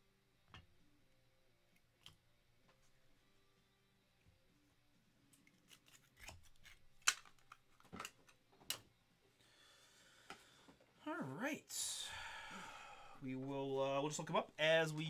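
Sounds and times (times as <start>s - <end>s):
cards and plastic holders clicking: 5.4s - 8.9s.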